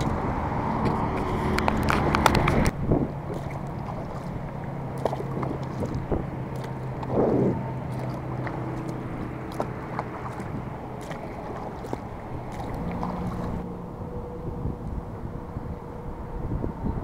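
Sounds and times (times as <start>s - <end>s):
water splashing against kayak hull: 0.0s - 13.7s
steady rushing noise: 0.0s - 17.0s
paddle knocking against hull: 0.8s - 13.6s.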